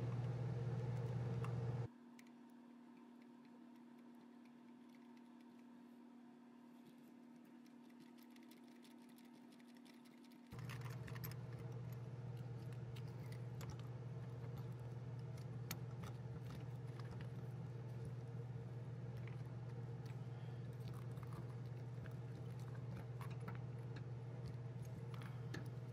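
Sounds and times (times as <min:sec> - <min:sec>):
low hum: 0:00.0 - 0:01.9, 0:10.5 - 0:25.9.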